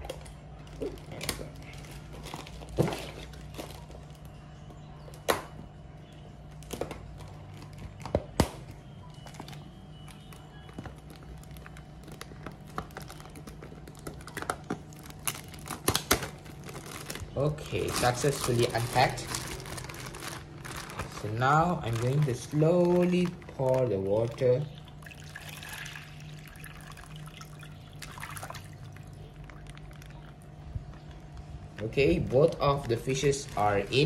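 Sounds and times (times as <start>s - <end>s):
plastic bag crinkling: 0.0s - 4.3s, 9.1s - 34.0s
plastic bag clicks and knocks: 6.6s - 24.4s.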